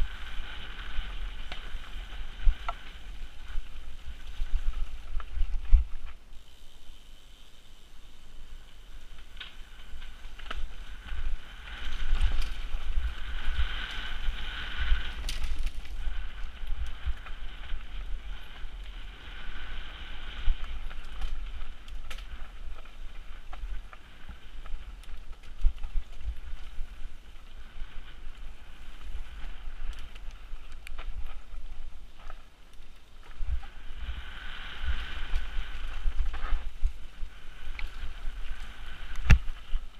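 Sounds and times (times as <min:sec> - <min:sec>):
wind rumble on microphone: 0:00.0 - 0:07.3, 0:08.1 - 0:39.9
bike tyre noise on dirt: 0:00.0 - 0:39.9.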